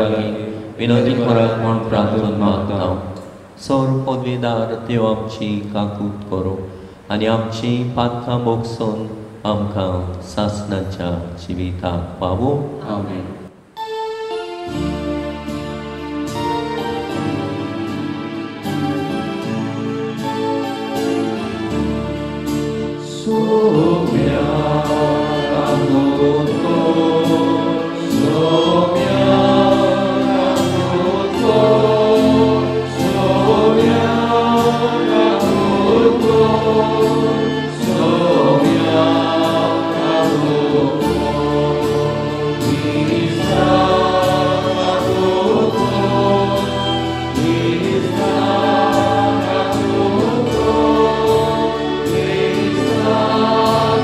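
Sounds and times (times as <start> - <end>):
choir singing a hymn: 0.0 - 3.2, 15.4 - 54.0
man's lead voice: 0.0 - 13.6, 23.0 - 54.0
violin: 13.8 - 54.0
strummed guitar: 13.9 - 54.0.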